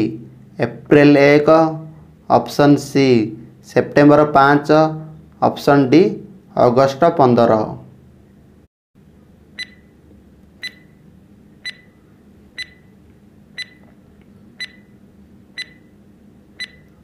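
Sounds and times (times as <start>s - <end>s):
clock ticking with ringing tone: 9.6s - 9.9s, 10.6s - 11.0s, 11.6s - 11.9s, 12.6s - 12.9s, 13.6s - 13.8s, 14.6s - 14.9s, 15.6s - 15.9s, 16.6s - 17.0s.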